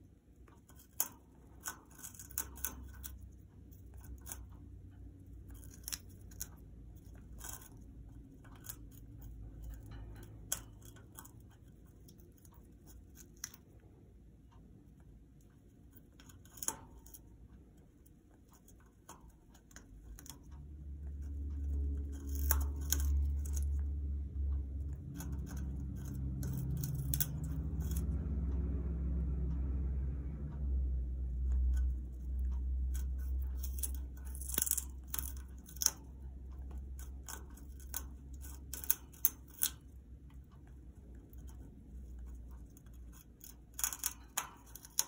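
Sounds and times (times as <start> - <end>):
parrot chewing wood: 0.4 - 14.0, 15.6 - 29.4, 30.7 - 45.0
low rumble: 20.1 - 45.0.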